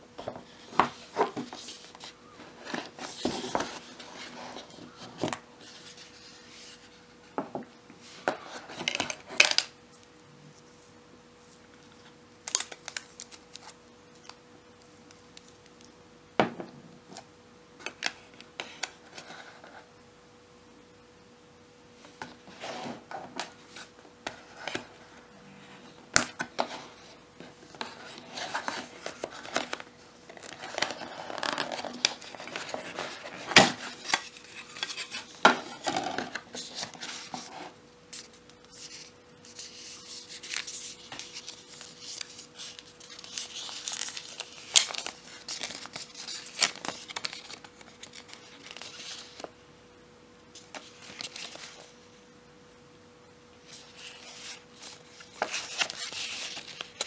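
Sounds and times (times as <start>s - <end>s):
faint steady hum: 0.0s - 57.0s
paper rustling and crinkling: 0.2s - 7.2s, 22.0s - 49.6s, 50.6s - 52.0s, 53.7s - 57.0s.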